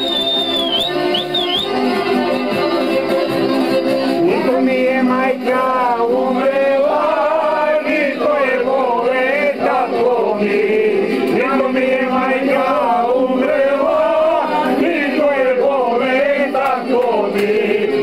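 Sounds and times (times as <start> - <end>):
group of men singing: 4.2 - 18.0.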